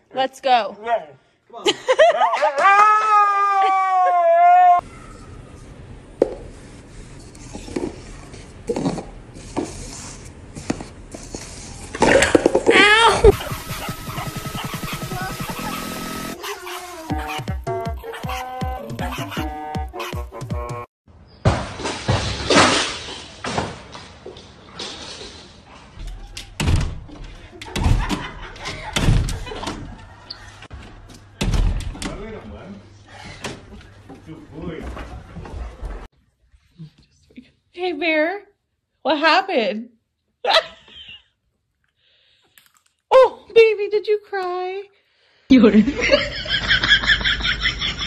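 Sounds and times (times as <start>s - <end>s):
paper cups scraping on marble floor: 6.6s - 12.0s
glass door banging in frame: 27.7s - 28.3s.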